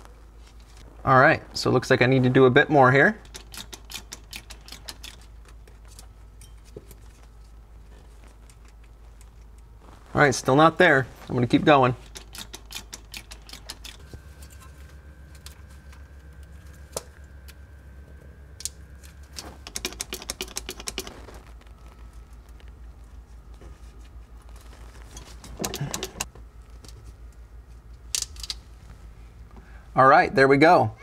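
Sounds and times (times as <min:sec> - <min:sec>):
hand pump clicking and rattling: 0:03.2 - 0:05.3, 0:12.0 - 0:14.0, 0:19.6 - 0:21.1, 0:25.2 - 0:26.3.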